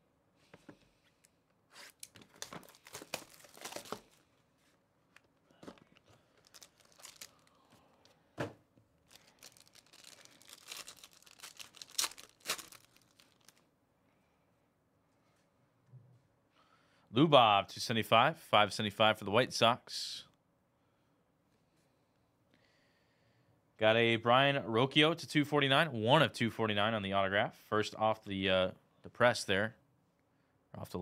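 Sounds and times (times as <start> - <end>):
packaging tearing and crinkling: 1.7 - 4.2, 6.3 - 7.6, 9.1 - 13.6.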